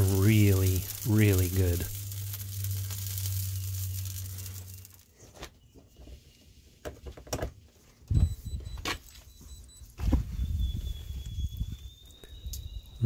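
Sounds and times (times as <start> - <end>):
electrical hum with sizzling hiss: 0.0 - 5.5.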